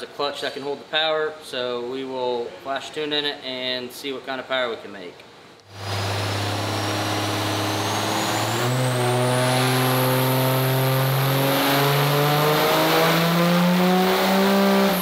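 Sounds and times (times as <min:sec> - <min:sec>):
diesel engine under full load: 0:05.7 - 0:15.0
high turbo whine: 0:05.7 - 0:15.0.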